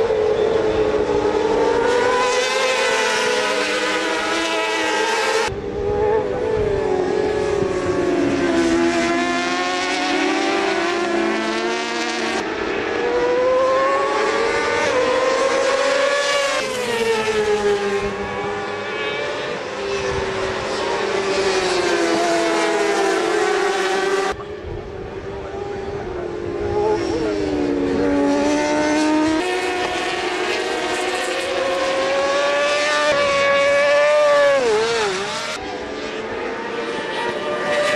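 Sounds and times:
racing motorcycle engines revving: 0.0 - 37.9.

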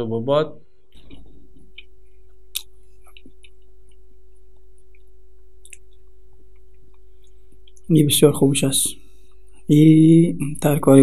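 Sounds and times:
high electrical hum: 0.0 - 11.0
man chewing: 0.9 - 7.9
mouth clicks: 0.9 - 7.9.

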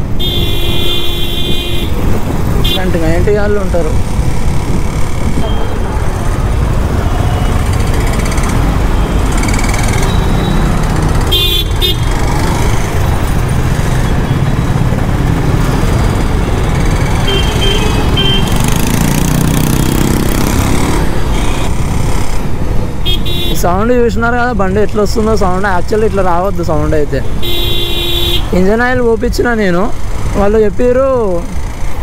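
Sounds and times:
horns tooting: 0.0 - 3.0, 6.8 - 12.7, 15.4 - 19.7, 23.0 - 23.8, 27.3 - 28.7.

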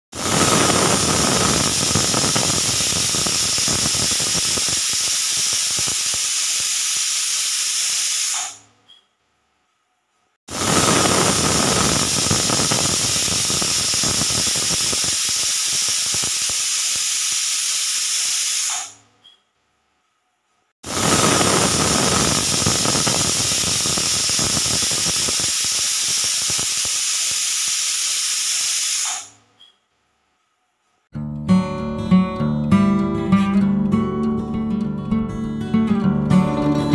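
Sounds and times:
pressure cooker valve hissing steam: 0.2 - 8.6, 10.5 - 19.0, 20.9 - 29.4.

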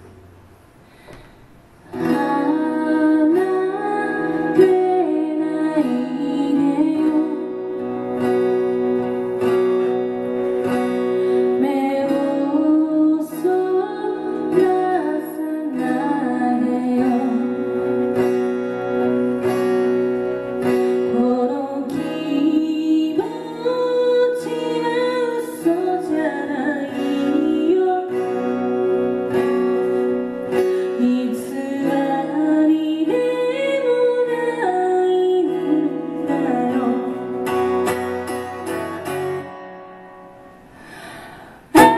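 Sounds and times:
acoustic guitar strumming: 0.0 - 41.9
woman singing: 1.9 - 9.1, 10.6 - 18.7, 20.6 - 29.8, 30.5 - 38.3.

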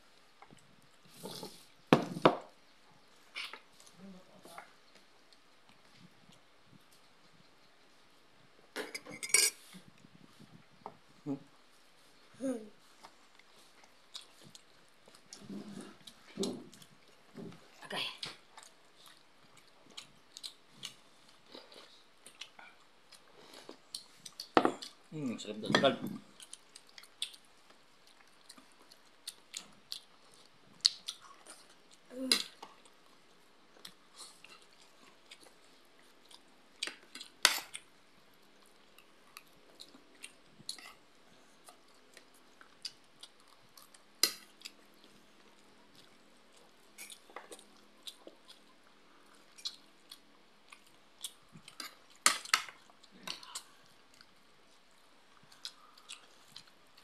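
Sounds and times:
spoon scraping plates: 9.0 - 9.6
people chewing: 12.8 - 25.2, 25.8 - 57.0.

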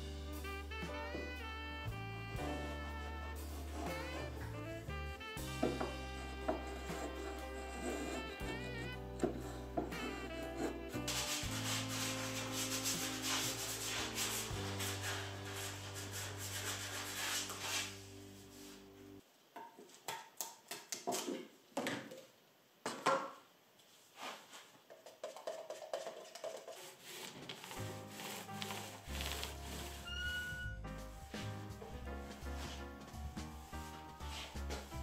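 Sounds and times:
background music: 0.0 - 19.2, 27.6 - 35.0
spokeshave scraping wood: 5.5 - 18.0
sandpaper rubbing wood: 5.6 - 8.8, 10.0 - 18.1, 26.8 - 30.4.

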